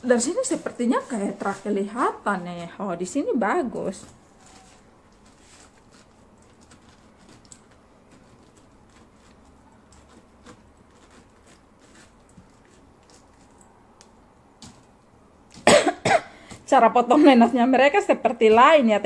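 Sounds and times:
small clicks and scrapes: 4.4 - 13.7
knife cutting pineapple: 5.2 - 13.8.

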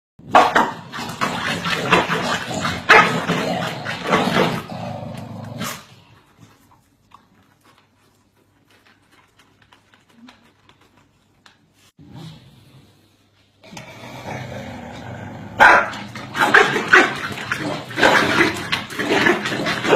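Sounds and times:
dogs barking: 15.6 - 19.9.

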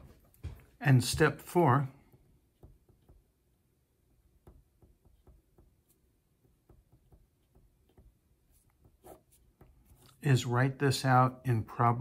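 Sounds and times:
pen writing on paper: 2.2 - 3.3, 4.3 - 10.1.

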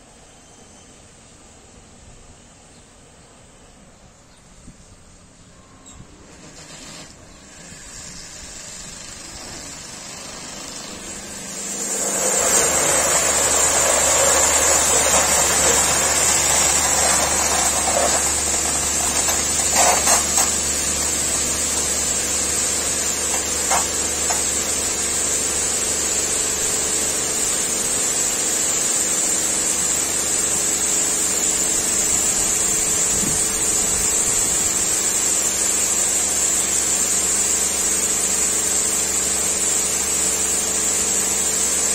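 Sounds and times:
high-pressure water jets spraying: 6.5 - 41.9
pump humming: 8.6 - 41.9.

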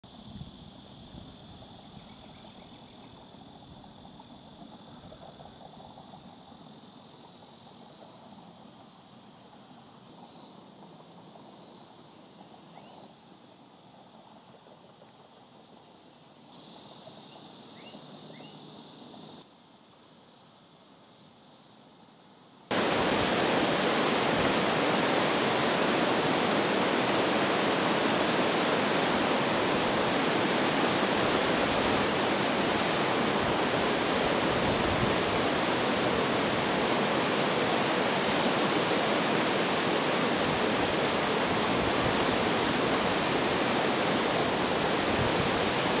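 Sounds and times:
water pouring over spillway: 22.7 - 46.0.

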